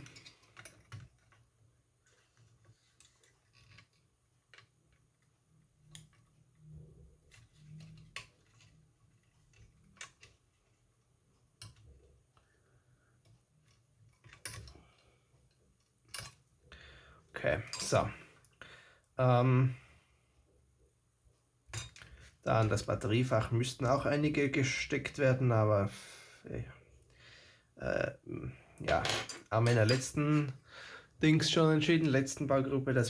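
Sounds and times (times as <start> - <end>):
plastic parts clicking and tapping: 0.0 - 1.5, 2.1 - 10.8, 13.2 - 16.5.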